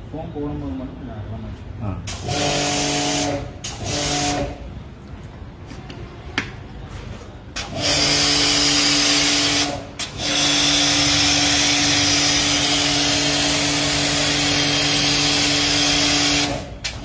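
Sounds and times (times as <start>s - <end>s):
pressure washer motor hum: 2.1s - 4.7s, 7.6s - 17.0s.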